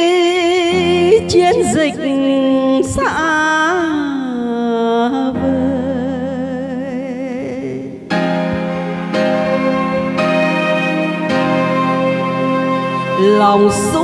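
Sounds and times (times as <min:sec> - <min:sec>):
woman singing: 0:00.0 - 0:07.8, 0:13.2 - 0:14.0
backing music: 0:08.1 - 0:14.0.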